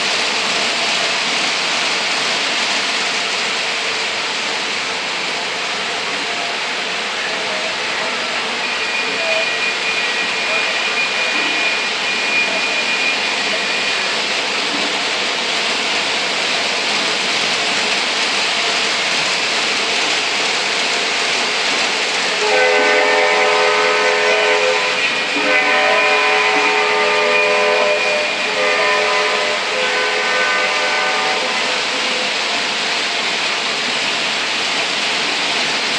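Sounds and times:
model locomotive horn blasts: 8.6s - 14.1s, 22.3s - 31.8s.

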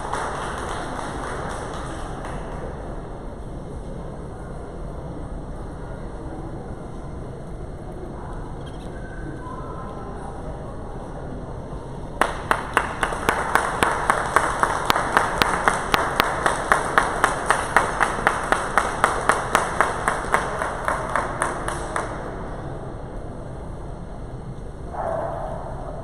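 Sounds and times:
spectators clapping in unison: 0.0s - 3.0s, 12.2s - 22.7s.

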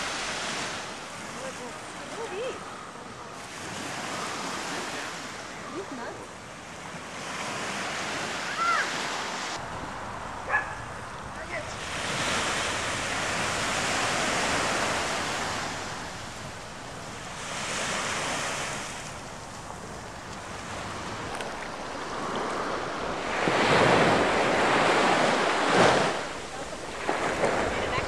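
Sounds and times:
ocean surf washing onto beach: 0.0s - 28.0s
wind rumbling on microphone: 9.6s - 28.0s.

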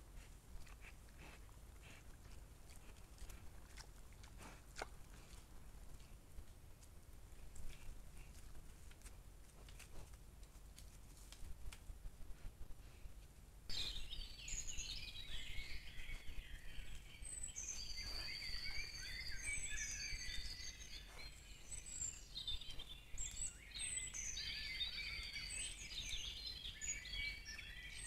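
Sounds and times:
songbirds singing: 13.7s - 28.0s.

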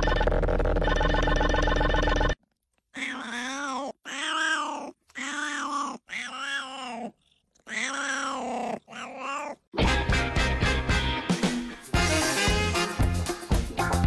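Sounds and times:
cat yowling: 2.9s - 9.7s
upbeat swing music: 9.8s - 14.0s.

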